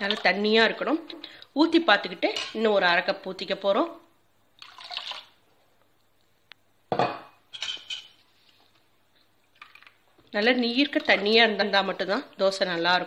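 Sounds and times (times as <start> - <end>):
water pouring splash: 4.6 - 5.4.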